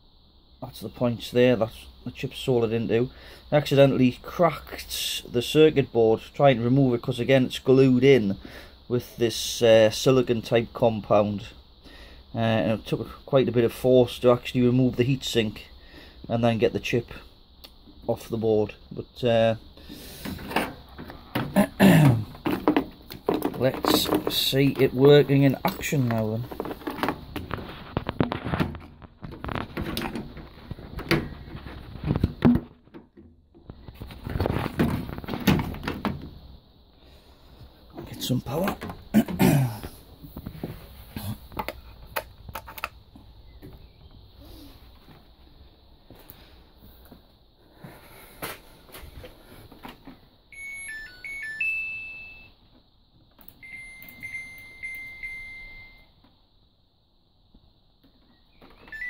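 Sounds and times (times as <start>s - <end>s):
circuit board and connectors rattling: 22.2s - 36.4s, 41.5s - 43.1s
washing machine beeper melody: 50.5s - 52.6s, 53.6s - 56.1s.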